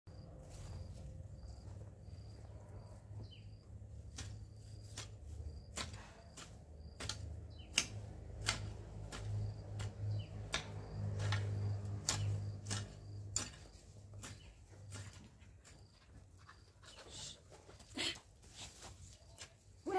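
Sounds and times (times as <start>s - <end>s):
hoe chopping into soil: 4.0s - 15.9s.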